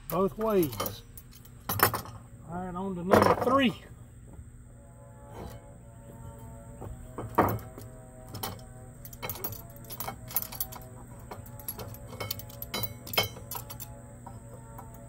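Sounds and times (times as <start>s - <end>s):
metal blade clanking: 8.4s - 13.9s.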